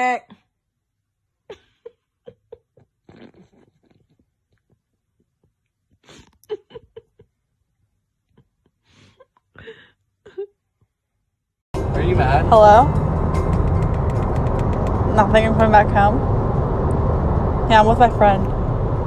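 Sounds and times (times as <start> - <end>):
person stifled laughter: 1.5 - 4.2, 6.1 - 7.3.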